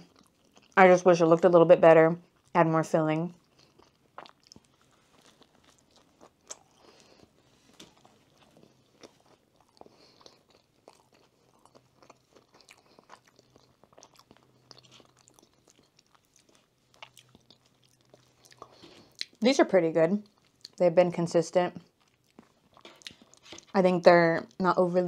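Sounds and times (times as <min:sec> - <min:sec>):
chewing and crunching sandwich: 0:00.0 - 0:00.8, 0:02.2 - 0:02.6, 0:03.3 - 0:19.4, 0:20.2 - 0:20.8, 0:21.8 - 0:23.8.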